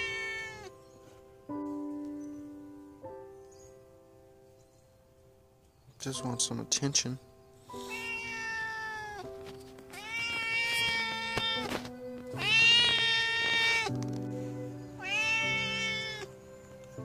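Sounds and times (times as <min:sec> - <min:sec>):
cat meowing: 0:00.0 - 0:00.8, 0:07.7 - 0:14.0, 0:14.9 - 0:16.4.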